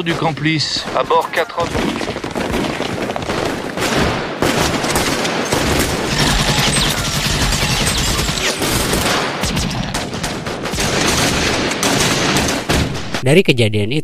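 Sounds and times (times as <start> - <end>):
gunfire volley: 0.0 - 13.2.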